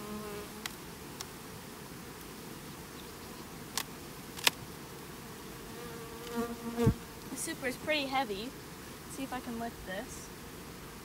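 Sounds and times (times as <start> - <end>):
bees buzzing: 0.0 - 11.0
hive tool clicks: 3.7 - 4.6.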